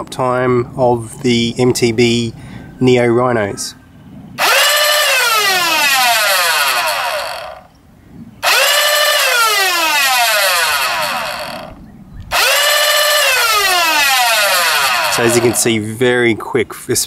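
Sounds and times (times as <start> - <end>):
electric motors revving whine: 4.4 - 7.7, 8.4 - 15.6.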